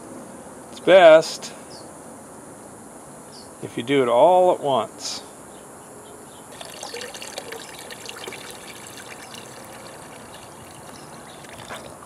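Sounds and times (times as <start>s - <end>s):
water sloshing and splashing: 6.5s - 12.0s.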